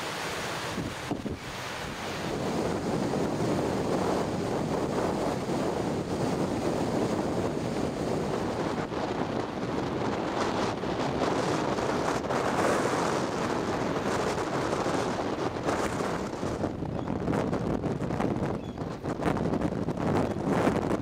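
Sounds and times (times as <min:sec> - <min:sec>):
waves washing onto shore: 0:00.0 - 0:18.3
strong wind buffeting microphone: 0:00.0 - 0:21.0.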